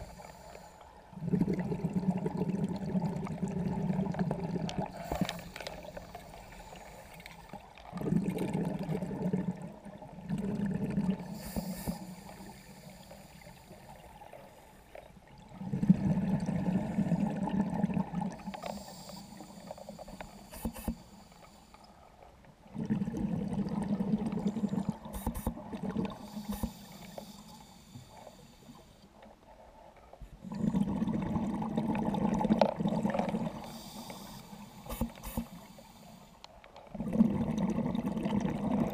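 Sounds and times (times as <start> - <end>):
regulator inhalation hiss: 0.0 - 0.8, 5.0 - 7.6, 11.3 - 14.7, 18.5 - 22.0, 26.2 - 29.0, 33.6 - 36.4
exhaled bubbles underwater: 0.0 - 21.0, 22.4 - 27.6, 30.4 - 35.8, 36.9 - 38.9.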